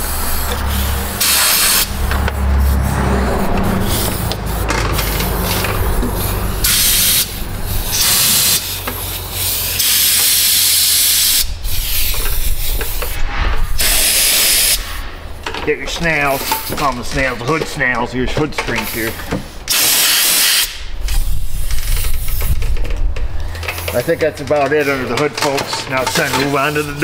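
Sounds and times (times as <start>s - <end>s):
spray gun hissing: 0.0s - 13.2s, 13.8s - 15.0s.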